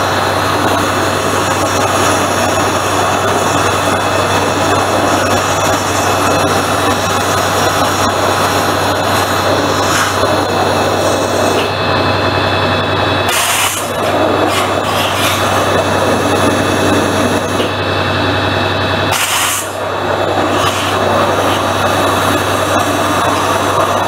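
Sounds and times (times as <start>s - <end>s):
low machine hum: 0.0s - 24.0s
waterjet hiss: 19.1s - 24.0s.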